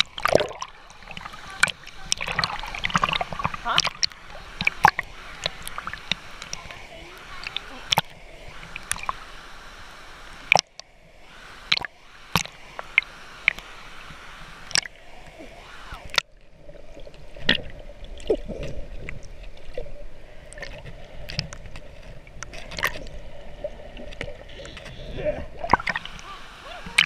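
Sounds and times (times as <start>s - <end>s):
bubbles gurgling: 0.0s - 9.2s, 22.3s - 27.0s
muffled underwater rumble: 0.0s - 27.0s
water lapping and splashing: 0.0s - 27.0s.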